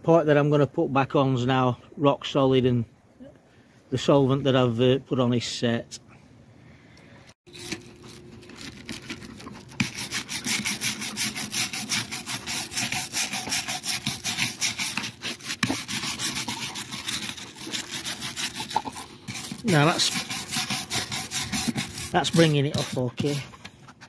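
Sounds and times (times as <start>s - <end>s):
wire brush scraping stone: 7.5s - 24.0s.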